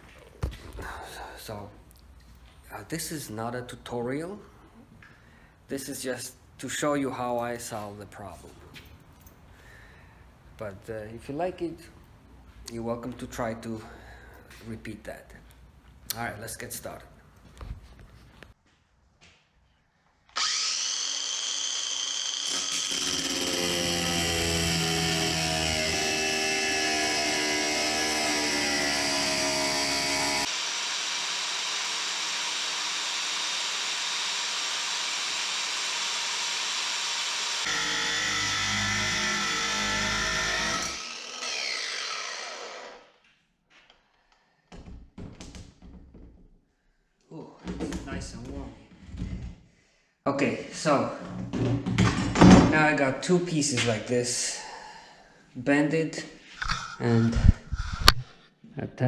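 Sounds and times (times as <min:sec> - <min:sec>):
angle grinder cutting metal: 0:20.4 - 0:43.1.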